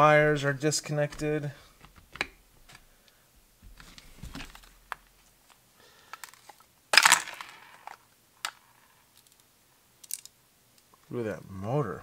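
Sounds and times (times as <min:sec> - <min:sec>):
plastic housing clicks and rattles: 0:10.0 - 0:10.4.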